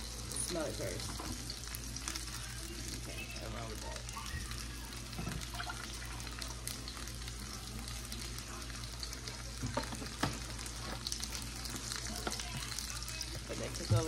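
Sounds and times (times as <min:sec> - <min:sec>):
sausages sizzling: 0:00.0 - 0:14.0
oil pouring into pot: 0:04.1 - 0:13.5.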